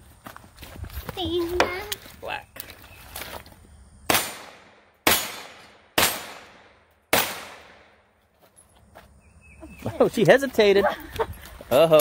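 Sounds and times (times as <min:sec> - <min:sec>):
gunshots: 0:04.1 - 0:08.0.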